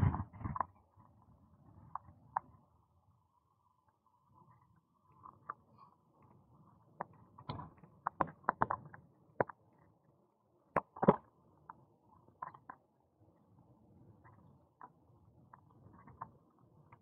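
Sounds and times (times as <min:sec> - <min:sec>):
faint low rumble: 0:00.0 - 0:08.0.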